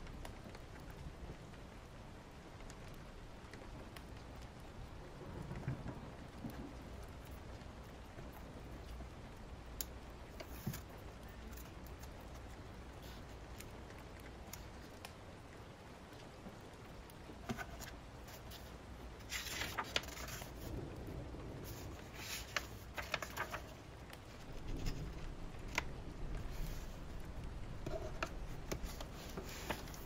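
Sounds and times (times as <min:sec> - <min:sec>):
steady rain: 0:00.0 - 0:30.0
paper rustling: 0:10.3 - 0:13.7, 0:17.3 - 0:20.8, 0:21.6 - 0:30.0.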